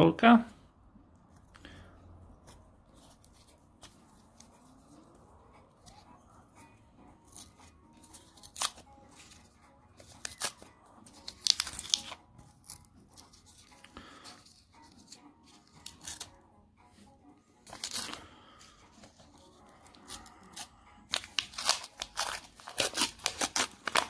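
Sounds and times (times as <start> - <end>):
paper wrapper tearing: 7.3 - 9.4, 10.0 - 13.7, 14.9 - 16.3, 17.7 - 18.3, 19.9 - 24.0.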